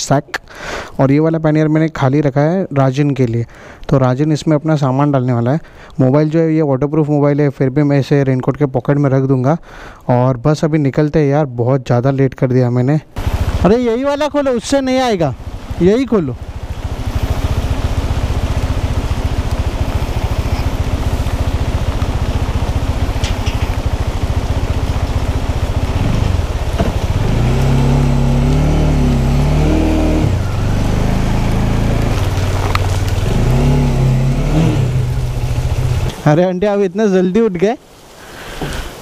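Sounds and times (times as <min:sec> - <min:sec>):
motorcycle engine idling and revving: 0:13.2 - 0:36.2.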